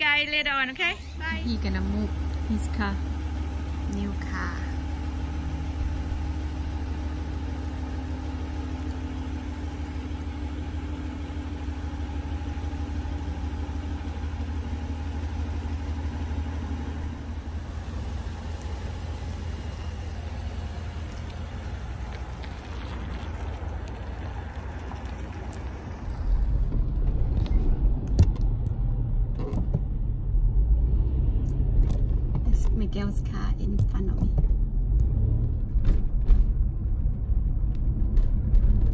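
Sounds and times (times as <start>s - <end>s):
car driving rumble: 0.0s - 38.9s
pickup truck idling: 0.6s - 27.2s.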